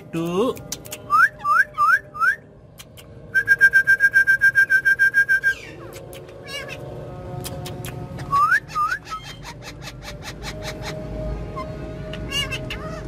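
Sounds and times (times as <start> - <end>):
parakeet whistling and trilling: 1.1 - 2.5, 3.3 - 5.8, 8.2 - 13.0.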